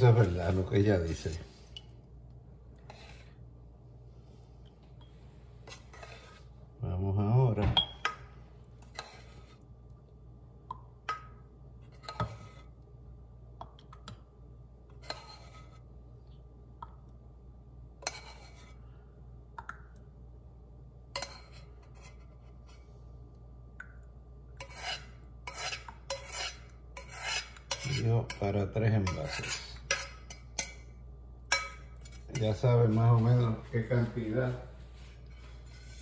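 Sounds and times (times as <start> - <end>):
steady low hum: 0.0 - 36.0
metal spoon scraping saucepan: 5.6 - 6.5, 15.0 - 15.8, 18.0 - 18.8, 24.6 - 30.8, 35.2 - 36.0.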